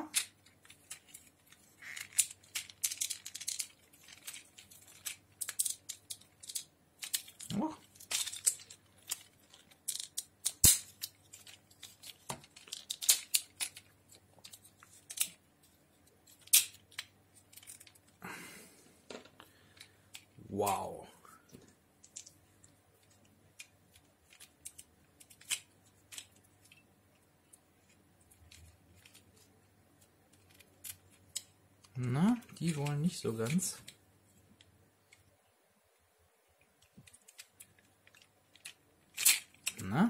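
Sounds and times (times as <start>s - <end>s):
plastic toy parts clicking: 0.0s - 15.4s, 16.1s - 18.0s, 23.0s - 34.0s, 36.8s - 39.8s.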